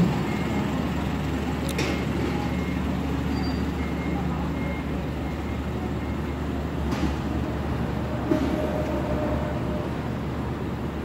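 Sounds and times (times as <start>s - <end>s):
work vehicle engines rumbling: 0.0s - 11.0s.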